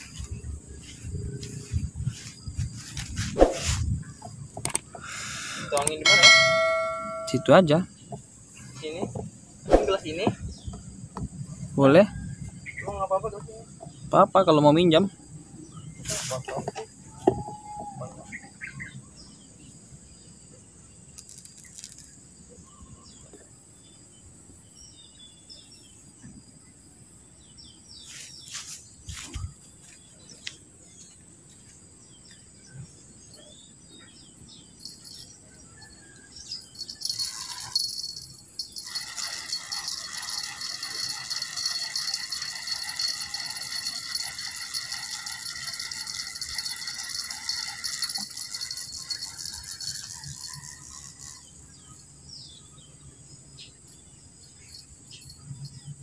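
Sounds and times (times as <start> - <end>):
fishing reel whirring rattle: 5.6 - 7.5, 21.2 - 22.2, 36.8 - 51.9.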